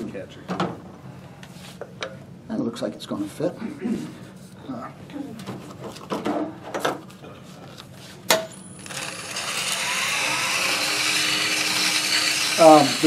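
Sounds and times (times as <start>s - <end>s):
lathe motor whine: 8.7s - 13.0s
sandpaper hissing on spinning wood: 9.0s - 13.0s.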